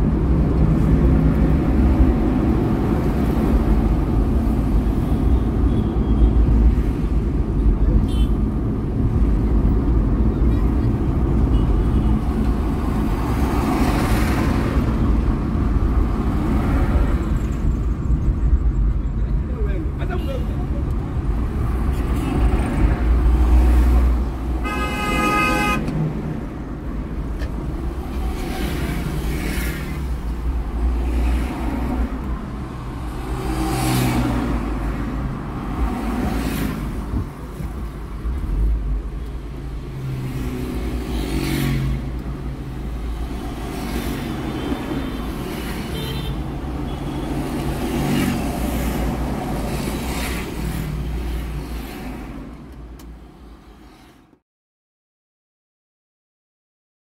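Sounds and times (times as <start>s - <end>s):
road and engine rumble: 0.0s - 54.4s
car horn: 8.0s - 8.4s, 24.6s - 25.9s, 44.5s - 47.4s.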